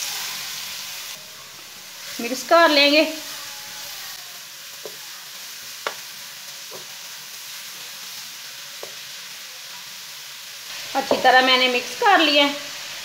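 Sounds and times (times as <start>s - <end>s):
carrots sizzling in hot oil: 0.0s - 13.0s.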